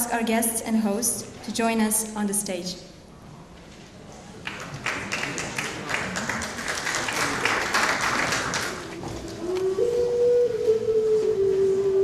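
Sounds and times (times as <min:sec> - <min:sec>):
audience applauding: 0:04.4 - 0:09.0.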